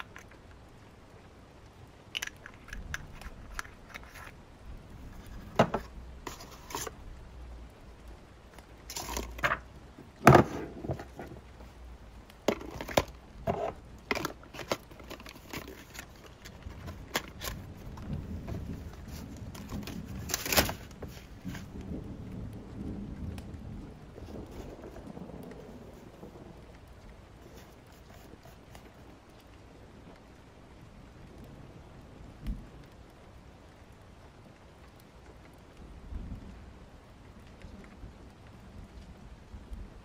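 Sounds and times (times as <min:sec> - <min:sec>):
paper rustling: 0:02.2 - 0:04.4, 0:05.0 - 0:07.0, 0:08.6 - 0:11.8, 0:12.4 - 0:21.8, 0:27.4 - 0:29.1
faint low rumble: 0:02.6 - 0:40.0.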